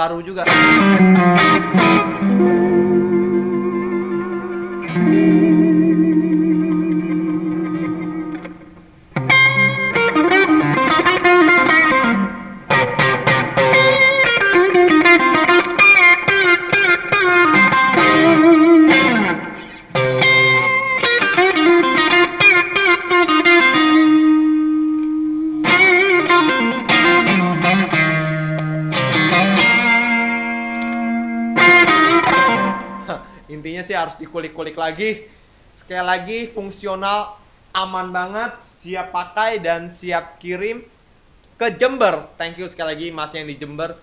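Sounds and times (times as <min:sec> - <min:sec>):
electric guitar lead playing: 0:00.4 - 0:33.4.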